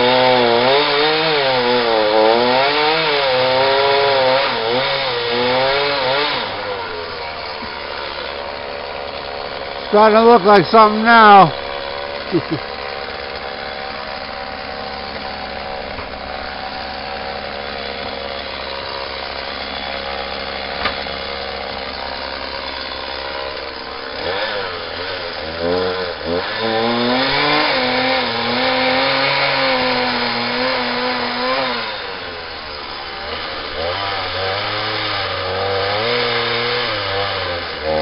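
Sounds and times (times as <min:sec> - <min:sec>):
chainsaw cutting wood: 0:00.0 - 0:38.0
chainsaw idling and revving: 0:00.0 - 0:38.0.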